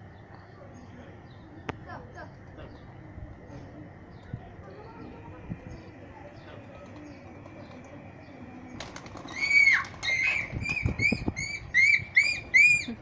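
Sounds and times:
pigeon wings flapping: 8.6 - 11.6.

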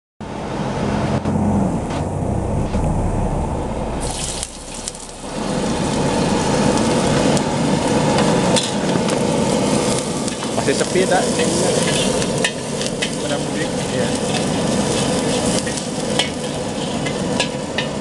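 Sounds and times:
low hum: 0.2 - 10.3, 11.3 - 15.2
oil sizzling in a wok: 4.0 - 18.0.

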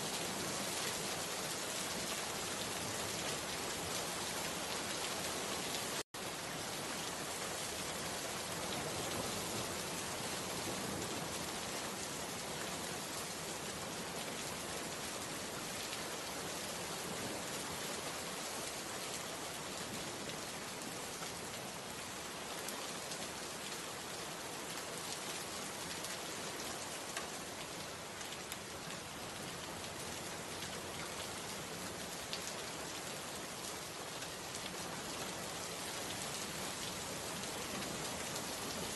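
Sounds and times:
steady rain: 0.0 - 38.9.

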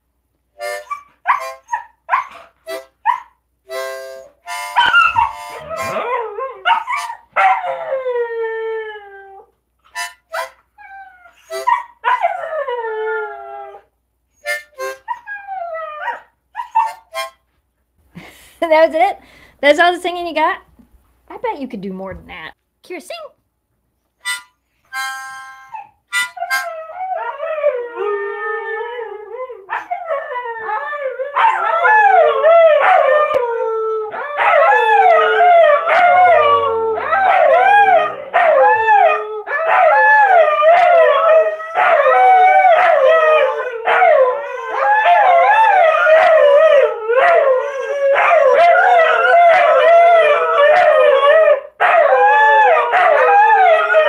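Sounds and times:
dogs howling together: 4.8 - 9.5, 26.7 - 54.0.

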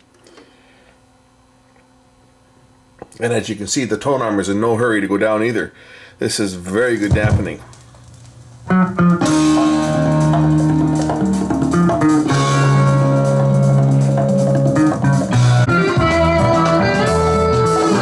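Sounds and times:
guitar and drums music from a record: 7.1 - 18.0.

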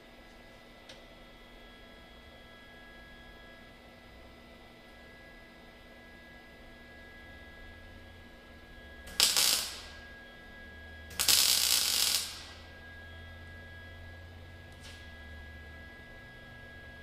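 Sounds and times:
electric arc welding crackle: 9.0 - 10.1, 11.1 - 12.7.

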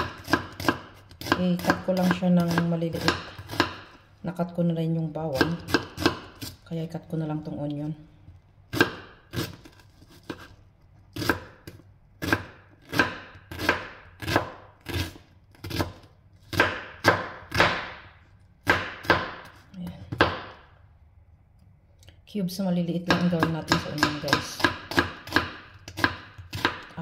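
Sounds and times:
knife chopping on cutting board: 0.0 - 4.0, 5.3 - 6.6, 8.7 - 10.6, 11.2 - 20.6, 23.1 - 27.0.

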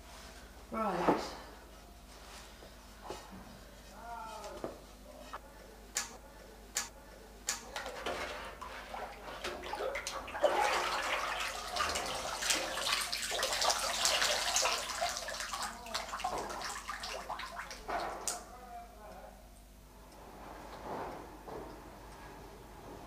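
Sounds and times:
glaze sloshing in metal tub: 7.8 - 18.4.

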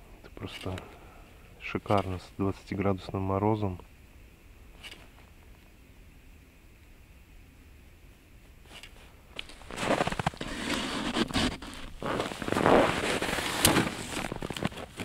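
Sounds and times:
snow crunching: 8.6 - 15.0
clothing rustling: 9.4 - 15.0.

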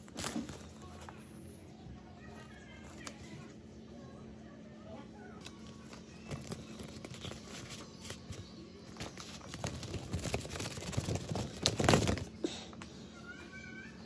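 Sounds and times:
packaging rustling and crinkling: 0.0 - 1.0, 5.6 - 12.4.

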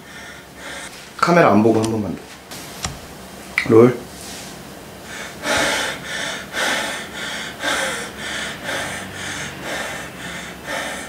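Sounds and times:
man breathing heavily: 0.0 - 1.1, 5.0 - 11.0.

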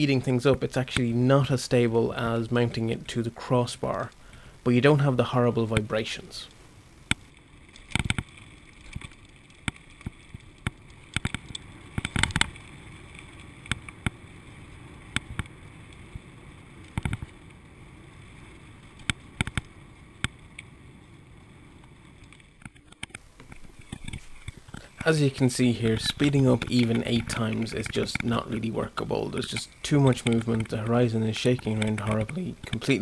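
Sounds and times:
bicycle riding on gravel: 7.3 - 33.0.

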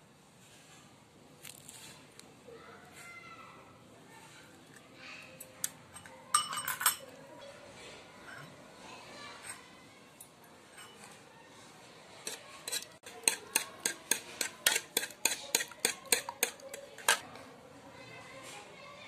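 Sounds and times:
spoon clinking against bowl: 5.9 - 7.2, 10.2 - 11.2, 12.2 - 17.2.

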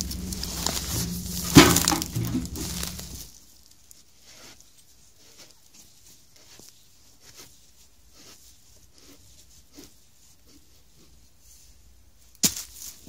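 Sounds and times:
footsteps on dry forest litter: 0.0 - 3.4.

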